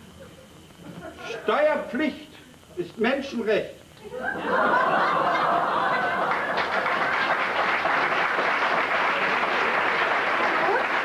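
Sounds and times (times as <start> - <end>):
audience laughter: 4.1 - 8.2
audience clapping: 5.6 - 11.0.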